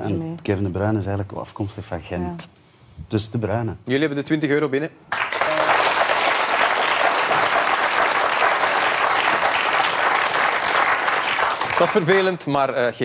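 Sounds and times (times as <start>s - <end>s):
audience applauding: 5.1s - 12.4s.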